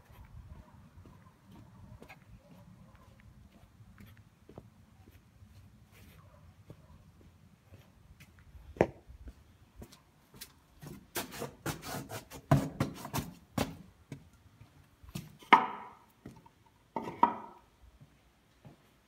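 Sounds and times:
footsteps on tiled floor: 0.0 - 14.3, 18.0 - 19.0.

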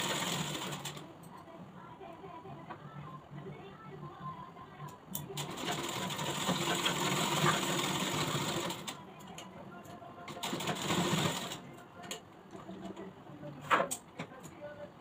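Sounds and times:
sewing machine stitching: 0.0 - 1.0, 5.4 - 9.0, 10.3 - 11.6.

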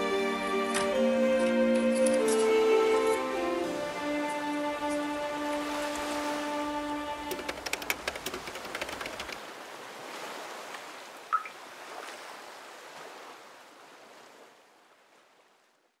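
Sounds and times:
ocean surf washing: 0.0 - 14.7.

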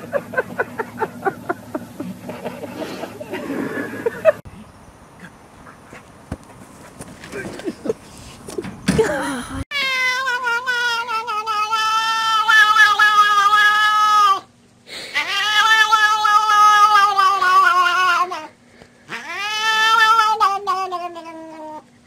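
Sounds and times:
cat yowling: 9.7 - 14.5, 15.2 - 18.5, 19.1 - 21.8.

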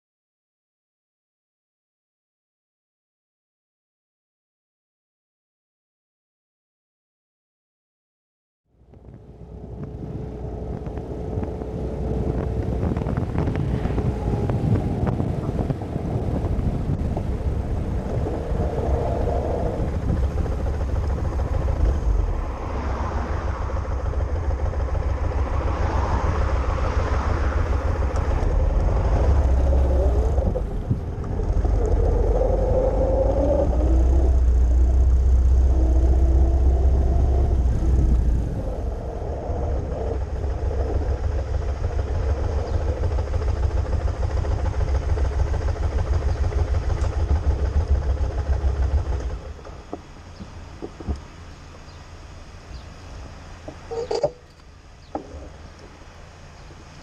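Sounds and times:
wind rumble on microphone: 8.8 - 52.1
motorcycle engine running: 8.8 - 57.0.

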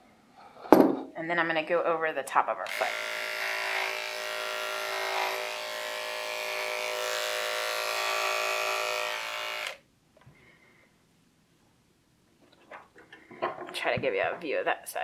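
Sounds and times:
electric clippers running: 2.7 - 9.8.

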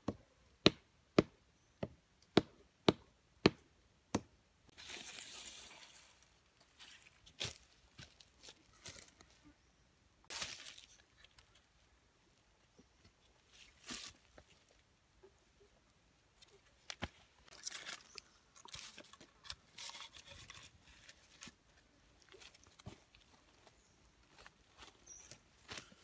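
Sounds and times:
rustling dry leaf litter: 4.7 - 9.4, 10.3 - 11.5.

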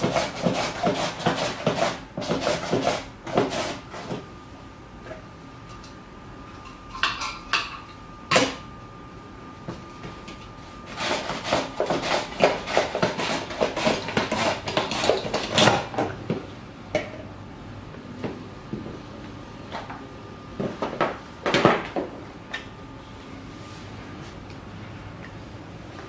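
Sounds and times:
vegetable scraping over slicer blade: 0.0 - 4.2, 10.9 - 15.7.

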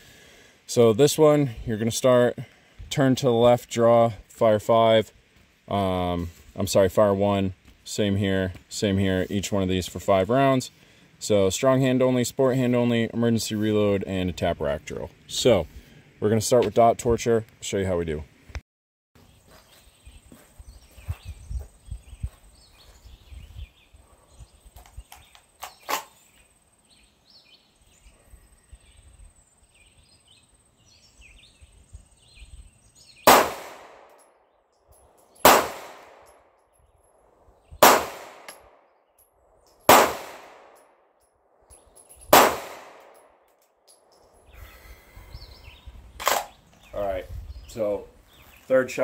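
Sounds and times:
pistol shots with echo: 33.2 - 34.2, 35.4 - 36.3, 37.8 - 38.8, 39.9 - 40.8, 42.3 - 43.2
sharp click: 38.3 - 38.7.

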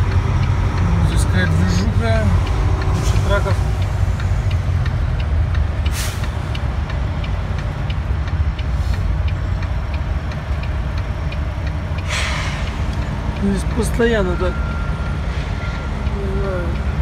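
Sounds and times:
faint regular ticking: 0.0 - 17.0
truck diesel engine running: 0.0 - 17.0
air brakes hissing: 5.9 - 6.5, 12.0 - 13.2.

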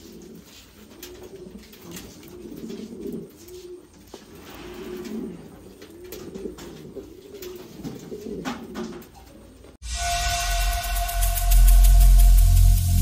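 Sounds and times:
pigeons cooing: 0.0 - 9.8.

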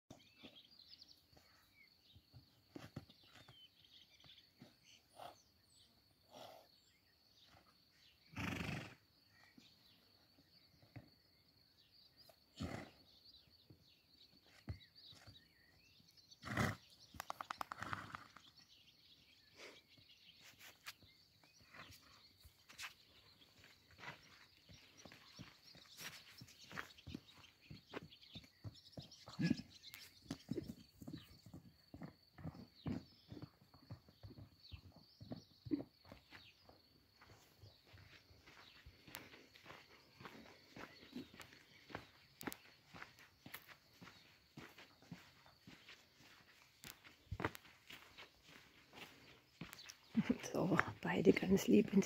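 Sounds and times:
hoofbeats: 1.3 - 5.4, 19.5 - 52.0
horse snorting: 8.3 - 9.0, 12.6 - 13.0, 16.4 - 16.9.

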